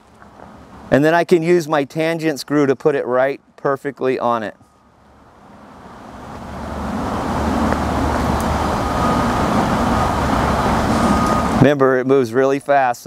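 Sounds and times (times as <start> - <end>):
motor vehicle engine rumble: 0.0 - 0.9, 4.6 - 11.6.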